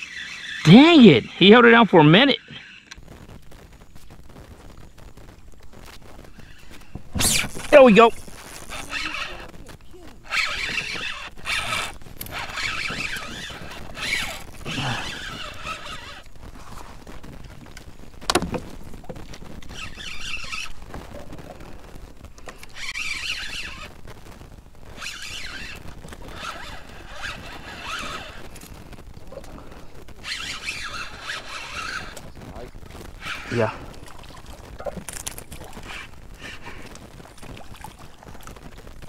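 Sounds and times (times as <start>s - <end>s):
fishing reel drag buzzing: 0.0s - 1.4s, 6.3s - 9.5s, 10.2s - 16.8s, 19.7s - 20.8s, 22.6s - 23.9s, 24.9s - 28.7s, 30.2s - 32.2s, 33.2s - 33.6s, 35.8s - 36.9s.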